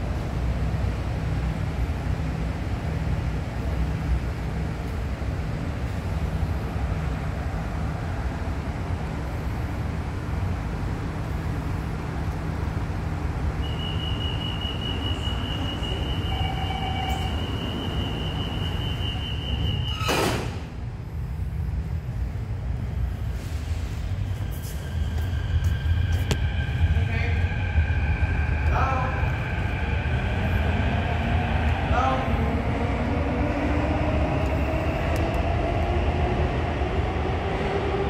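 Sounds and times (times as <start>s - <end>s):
train hum and rumble: 0.0s - 38.0s
short low beep: 13.6s - 20.1s.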